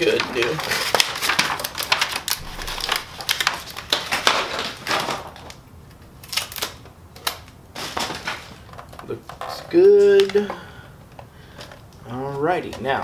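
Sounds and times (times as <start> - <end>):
paper sheet crackling: 0.0 - 5.3.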